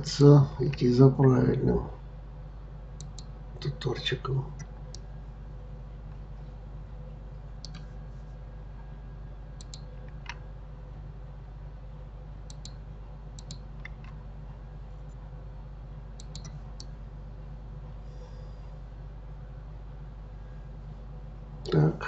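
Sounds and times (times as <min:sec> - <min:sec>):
steady low hum: 0:00.0 - 0:22.0
computer mouse and keyboard clicks: 0:07.6 - 0:07.9, 0:09.6 - 0:10.4, 0:13.4 - 0:14.2, 0:16.2 - 0:16.9.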